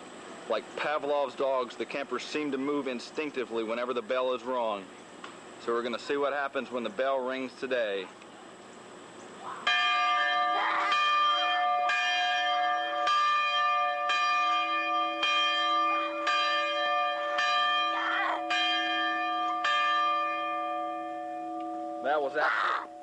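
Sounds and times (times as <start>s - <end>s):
large bell clanging: 9.7s - 23.0s.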